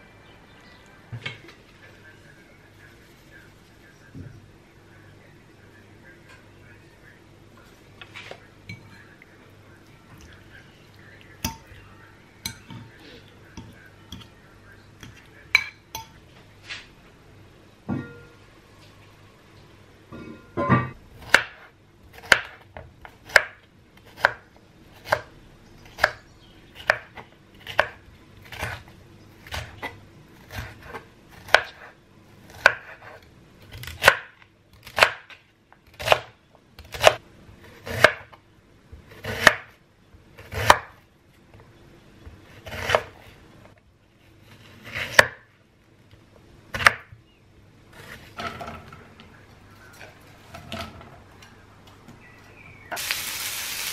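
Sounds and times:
knife chopping on wooden board: 0:21.2 - 0:22.6, 0:30.5 - 0:31.8, 0:32.5 - 0:33.2, 0:37.8 - 0:38.3, 0:39.1 - 0:39.7, 0:40.4 - 0:41.0, 0:44.8 - 0:45.4, 0:46.8 - 0:47.1.

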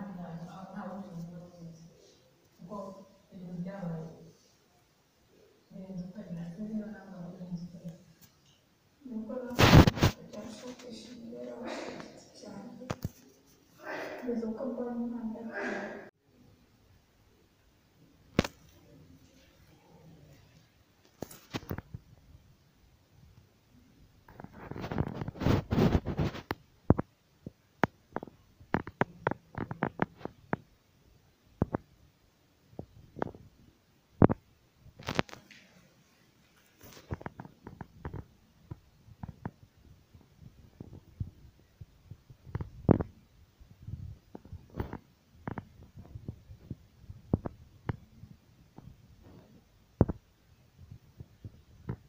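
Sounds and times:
camera handling rubbing rumble: 0:24.3 - 0:26.5.

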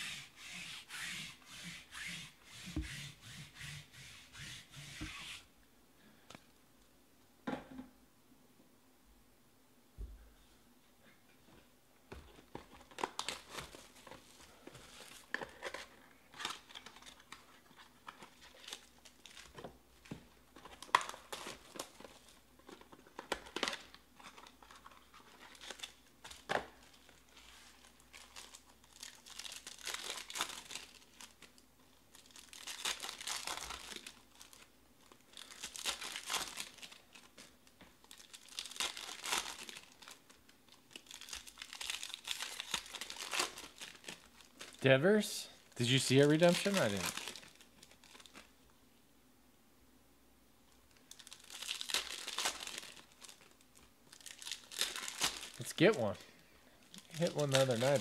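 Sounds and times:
plastic wrappers crinkling and tearing: 0:12.5 - 0:44.9, 0:45.6 - 0:48.6, 0:50.8 - 0:56.2, 0:56.8 - 0:58.0.

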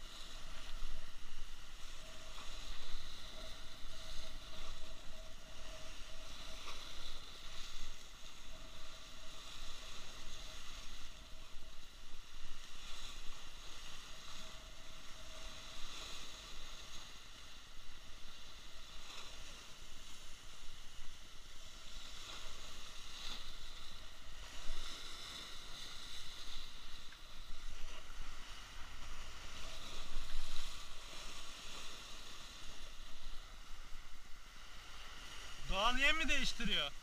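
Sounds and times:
sea waves breaking on rocks: 0:15.3 - 0:37.0.

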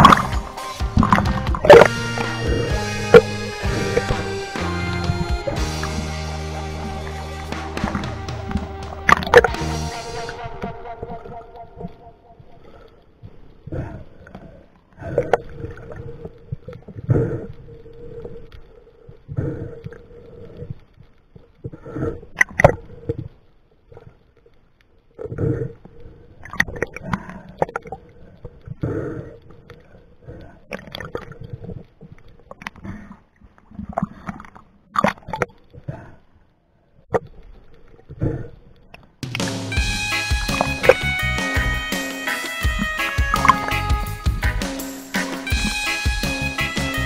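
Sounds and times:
underwater water movement: 0:00.0 - 0:39.7, 0:40.3 - 0:44.3
bubbling: 0:25.1 - 0:36.2.

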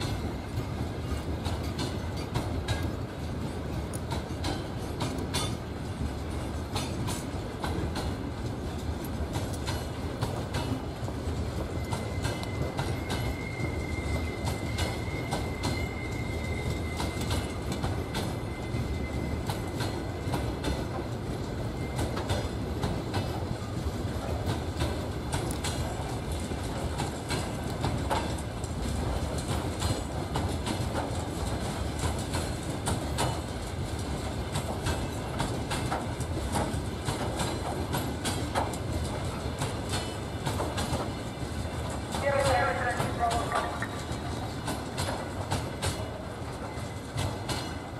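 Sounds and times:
freight train rumbling past: 0:00.0 - 0:47.9
wheels clicking over rail joints: 0:00.0 - 0:47.9
high wheel squeal: 0:11.6 - 0:20.0.

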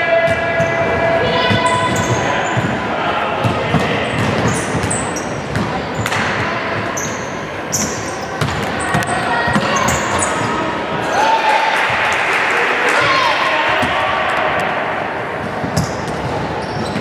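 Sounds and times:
sneakers squeaking on floor: 0:00.5 - 0:11.1, 0:15.4 - 0:17.0
basketball bouncing: 0:03.4 - 0:06.5, 0:07.8 - 0:10.3.

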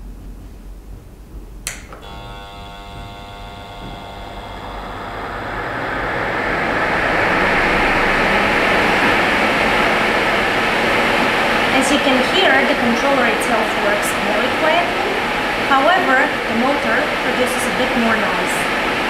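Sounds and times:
duct fan motor humming: 0:00.0 - 0:19.0
fan speed controller click: 0:01.6 - 0:05.2
rushing air: 0:04.6 - 0:15.8.

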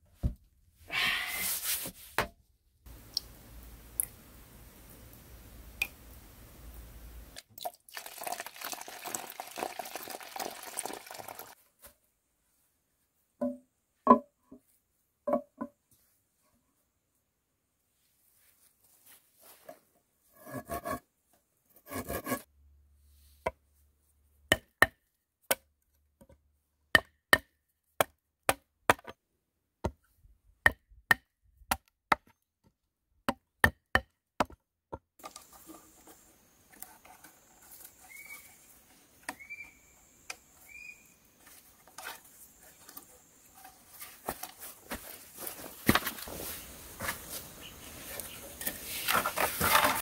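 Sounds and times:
hatchet chopping wooden log: 0:24.5 - 0:25.6, 0:27.0 - 0:29.1, 0:30.6 - 0:32.4, 0:33.3 - 0:34.6.

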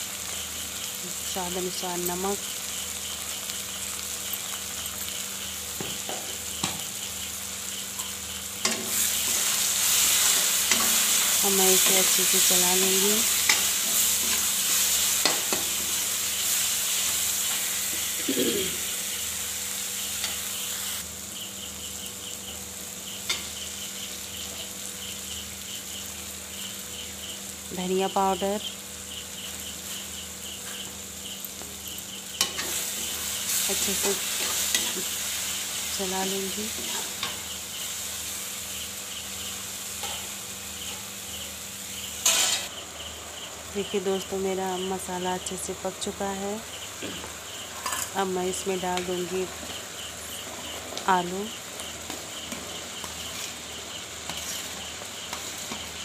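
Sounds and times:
insects chirping: 0:00.0 - 0:56.0
masala sizzling in oil: 0:00.0 - 0:56.0
spatula scraping pan: 0:08.6 - 0:12.5, 0:13.2 - 0:18.9, 0:42.2 - 0:42.7, 0:51.8 - 0:56.0.

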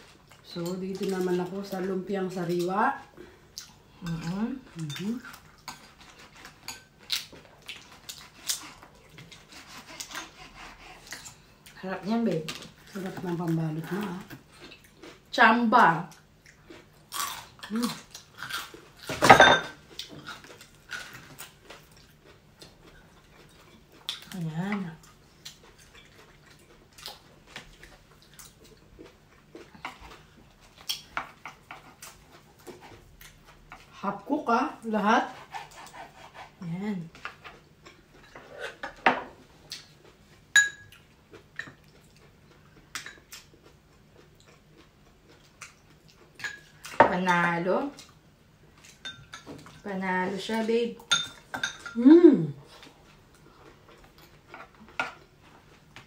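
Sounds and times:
chewing: 0:02.6 - 0:11.8, 0:12.5 - 0:15.3, 0:19.8 - 0:33.9, 0:39.6 - 0:47.0, 0:52.6 - 0:56.0
dishes clattering: 0:19.1 - 0:19.8
spoons clinking against ceramic bowls: 0:40.6 - 0:40.9, 0:51.1 - 0:52.0.

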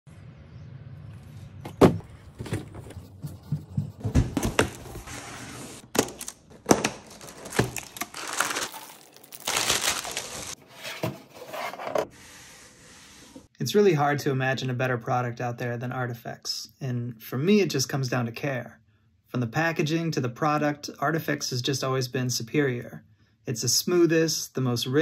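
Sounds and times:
plastic wrap crinkling: 0:05.6 - 0:10.6
scissors cutting plastic: 0:05.9 - 0:10.6.

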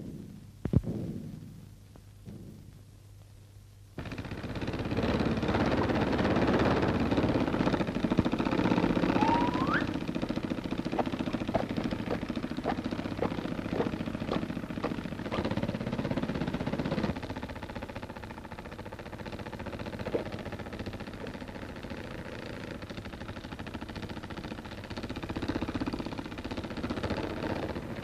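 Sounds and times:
fast mechanical rattle: 0:04.0 - 0:28.0
rising whistle: 0:09.0 - 0:10.0.

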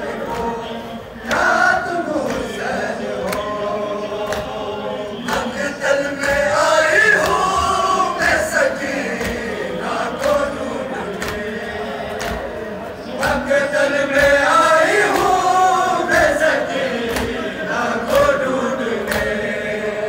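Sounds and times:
chorus of men singing: 0:00.0 - 0:20.0
hands slapping on chests: 0:03.2 - 0:03.6, 0:04.2 - 0:04.6, 0:06.2 - 0:19.4.

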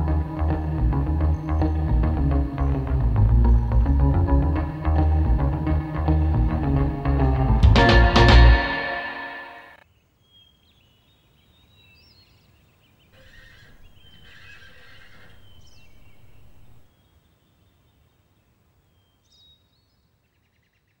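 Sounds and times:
birds chirping: 0:00.0 - 0:05.4, 0:10.0 - 0:18.1
horse whinnying: 0:13.2 - 0:16.8.

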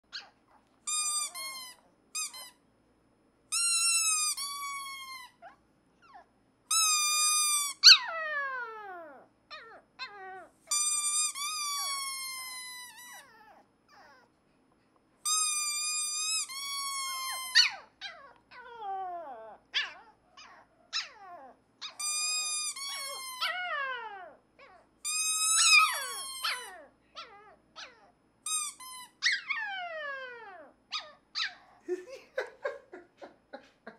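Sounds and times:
rubber squeaker toy squeaking: 0:00.9 - 0:02.6, 0:03.5 - 0:05.5, 0:06.7 - 0:08.2, 0:09.6 - 0:14.2, 0:15.2 - 0:18.7, 0:19.8 - 0:23.8, 0:24.6 - 0:29.7
puppy howling: 0:07.1 - 0:10.5, 0:11.5 - 0:14.3, 0:16.3 - 0:28.1, 0:29.2 - 0:32.0.

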